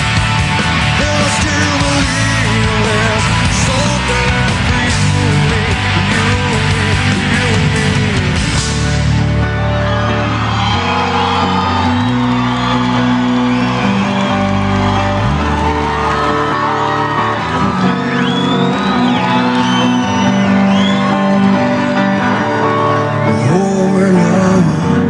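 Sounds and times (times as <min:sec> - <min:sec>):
instrumental rock music: 0:00.0 - 0:25.0.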